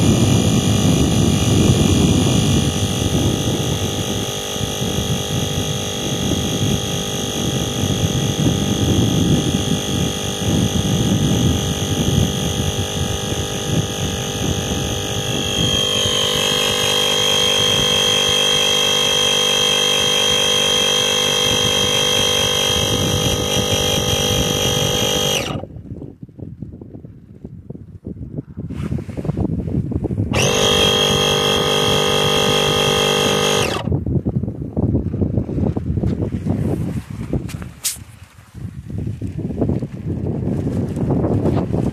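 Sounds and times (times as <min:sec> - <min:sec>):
electric pump whining: 0:00.0 - 0:25.7, 0:30.3 - 0:34.1.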